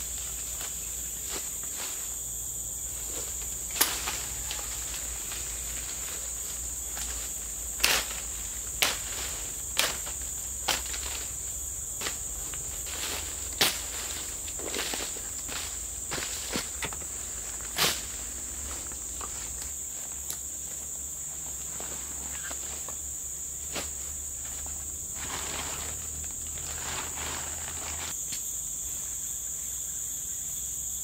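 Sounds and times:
forest insects chorus: 0.0 - 31.0
branches landing on dry leaves: 2.9 - 20.5
branches snapping: 3.1 - 11.4, 12.0 - 20.5.

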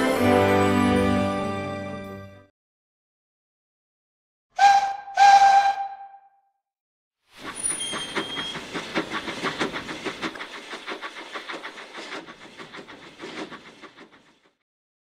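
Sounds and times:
steam hissing: 7.4 - 14.6
steam locomotive chuffing: 7.4 - 14.6.

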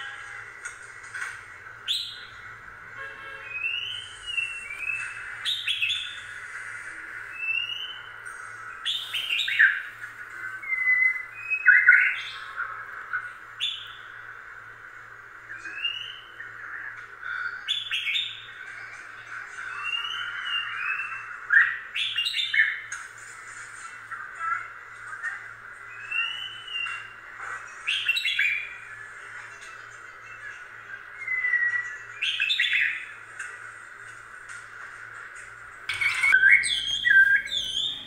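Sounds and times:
high chirping calls: 3.4 - 6.3, 7.3 - 10.0, 35.9 - 38.0
sharp squeaky calls: 35.9 - 38.0.

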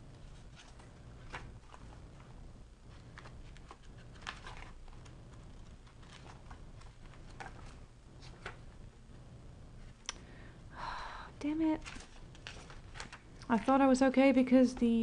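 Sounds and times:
paper pages turning: 0.2 - 2.3, 2.9 - 8.7, 11.8 - 13.7.

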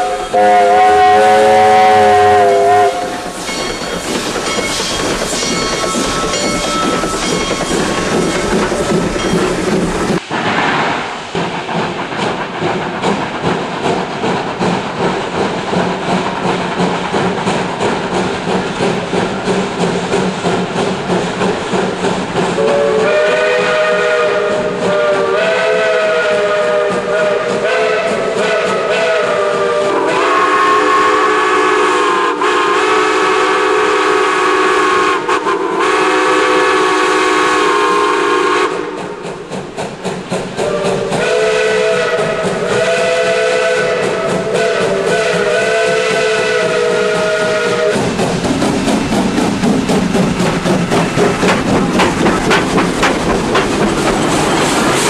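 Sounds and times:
steam locomotive chime whistle: 0.0 - 9.6, 22.6 - 39.2, 40.6 - 48.0
train rhythmic beat: 0.0 - 10.2, 11.2 - 55.0.

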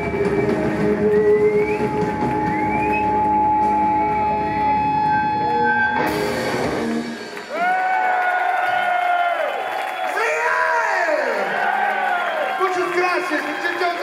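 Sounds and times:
electric guitars sustaining: 0.0 - 7.5.

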